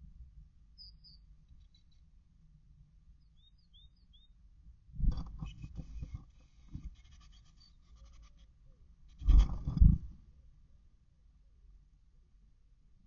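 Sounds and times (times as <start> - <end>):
bird chirps: 0.8 - 2.0, 3.2 - 4.4
faint high bird calls: 0.8 - 2.0, 3.2 - 4.4
claws scratching on wood: 5.4 - 8.5.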